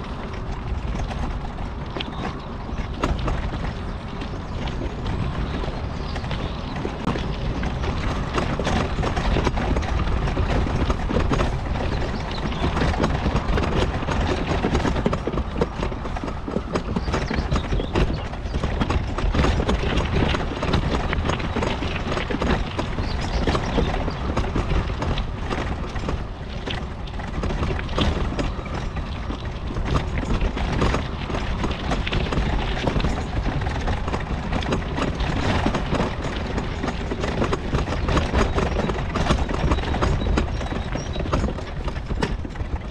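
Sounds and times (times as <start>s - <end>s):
clatter of knocks and rattles: 0.0s - 42.9s
scooter low rumble: 0.0s - 42.9s.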